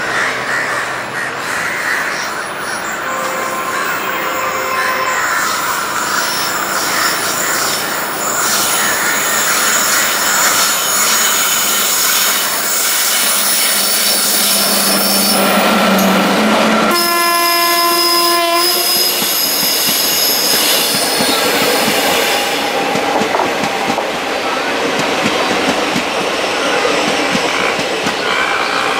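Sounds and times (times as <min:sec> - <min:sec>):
train running past: 0:00.0 - 0:28.9
wheels squealing: 0:01.6 - 0:23.8
train horn blast: 0:03.0 - 0:07.8, 0:13.4 - 0:22.7.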